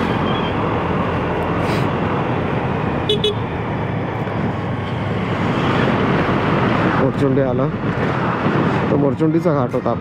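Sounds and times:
scooter riding on road: 0.0 - 10.0
scooter horn toots: 3.1 - 3.4.

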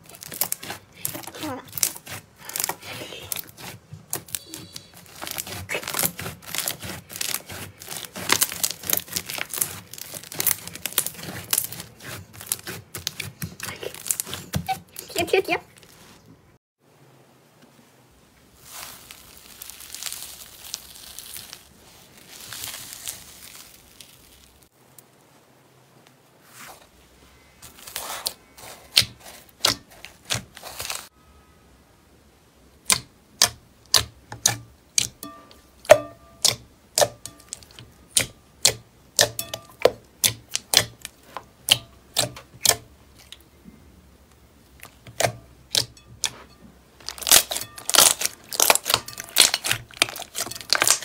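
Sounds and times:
slime squeezed crackling: 0.0 - 16.0, 18.6 - 24.7, 44.8 - 51.0
crisp pops and crackles: 47.0 - 51.0.

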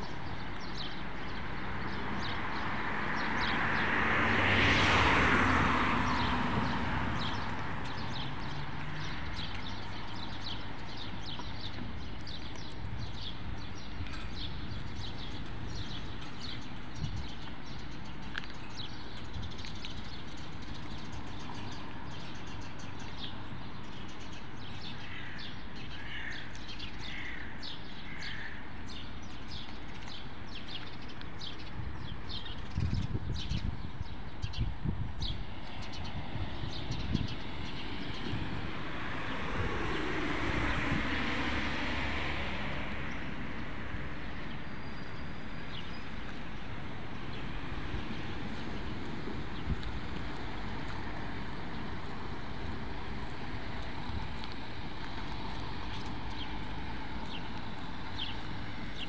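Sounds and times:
distant traffic hum: 0.0 - 59.0
small birds chirping: 6.1 - 38.4, 44.3 - 59.0.

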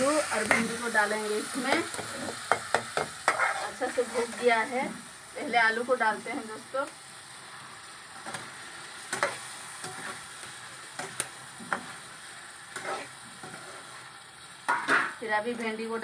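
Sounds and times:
food sizzling in a wok: 0.0 - 16.0
metal spatula scraping a pan: 0.1 - 4.7, 8.2 - 12.1, 12.7 - 15.2.

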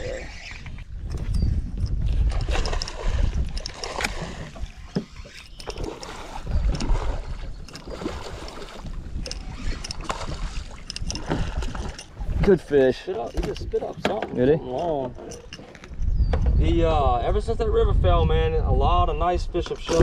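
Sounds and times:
wind rumbling on microphone: 0.0 - 20.0
knocks and clatter from boat: 0.7 - 16.7
water splashing: 2.2 - 14.2.

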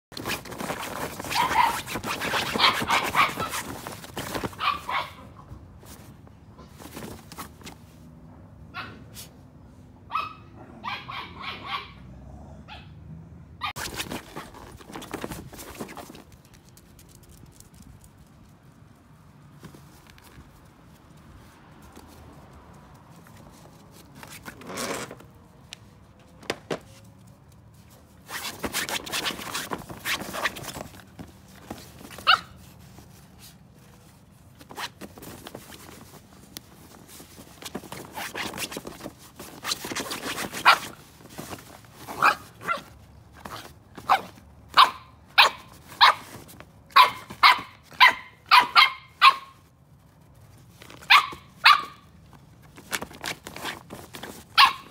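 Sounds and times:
scuffling on folding chair: 0.1 - 5.1, 5.8 - 8.0, 13.8 - 16.4, 23.2 - 54.9
puppies yapping: 1.1 - 5.3, 10.1 - 12.0.

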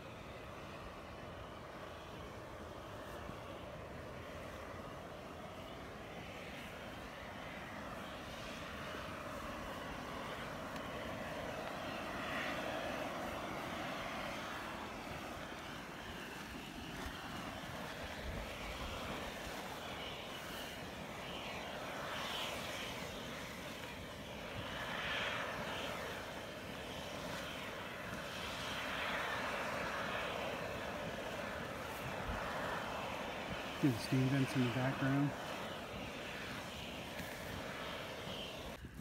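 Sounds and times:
geyser boiling and splashing: 0.3 - 38.8.

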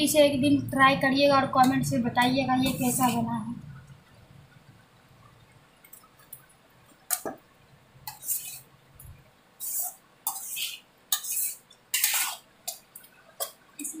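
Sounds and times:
spatula scraping a pan: 8.0 - 8.7, 9.6 - 12.8.

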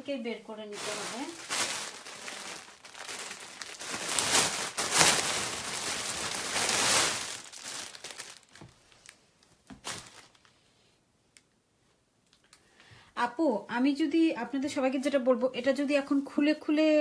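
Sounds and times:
cloth rustling and crinkling: 0.6 - 10.6.

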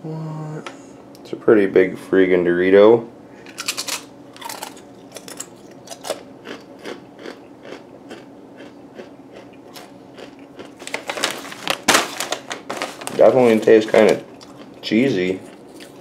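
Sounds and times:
chip crunching while chewed: 3.5 - 11.9, 13.4 - 16.0.

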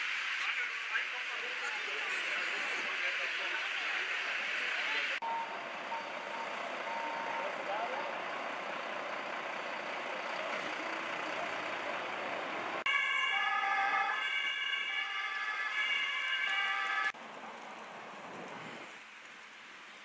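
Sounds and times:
street and engine noise: 0.0 - 20.0
two-tone siren: 5.2 - 8.5, 12.8 - 17.2.

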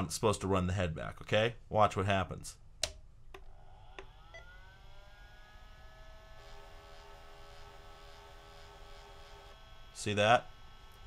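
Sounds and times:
faint motor whine: 3.3 - 11.0.

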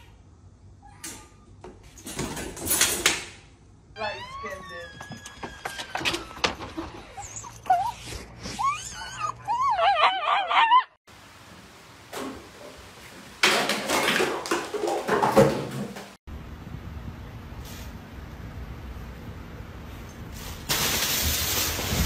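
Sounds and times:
dog whining: 4.0 - 11.0.

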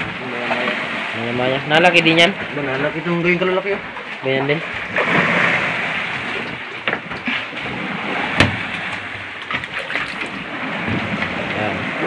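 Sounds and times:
water rushing around boat: 0.0 - 12.0
knocks on boat deck: 6.4 - 9.7.

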